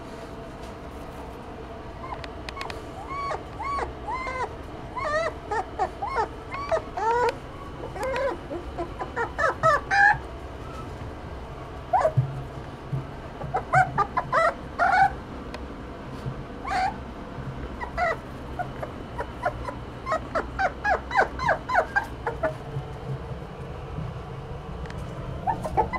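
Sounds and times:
steady low hum: 0.0s - 25.9s
puppy whimpering: 1.9s - 11.0s, 11.9s - 12.2s, 13.4s - 15.2s, 16.6s - 17.0s, 17.7s - 22.8s, 25.0s - 25.9s.

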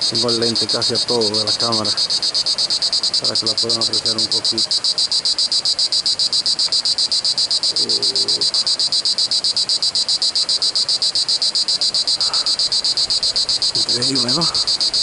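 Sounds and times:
cicada singing: 0.0s - 15.0s.

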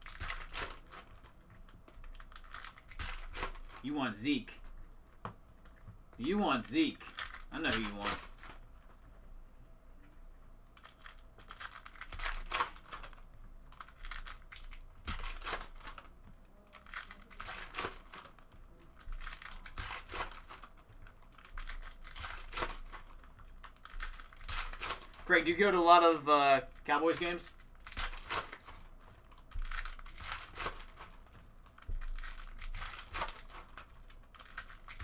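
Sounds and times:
foil wrappers tearing and crinkling: 0.0s - 1.3s, 2.0s - 3.8s, 10.8s - 13.2s, 13.8s - 16.1s, 16.7s - 35.0s
cards being handled: 0.0s - 9.0s, 10.7s - 35.0s.

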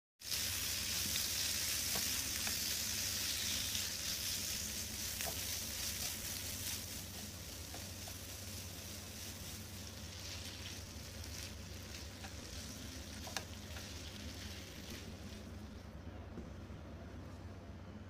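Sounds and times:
liver sizzling in hot oil: 0.2s - 15.8s.

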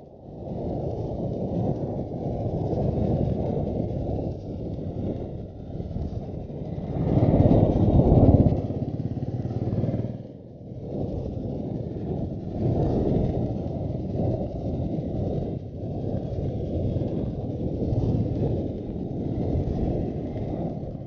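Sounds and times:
wind rushing over microphone: 0.0s - 21.0s
motorcycle engine running: 5.2s - 14.5s.

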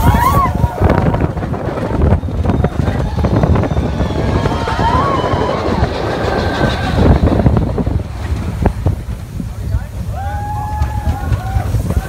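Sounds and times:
roller coaster train rumbling: 0.0s - 12.0s
wavering squeal: 1.8s - 8.2s.

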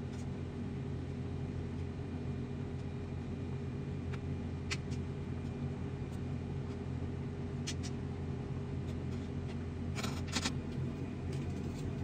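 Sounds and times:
low mechanical hum: 0.0s - 12.0s.

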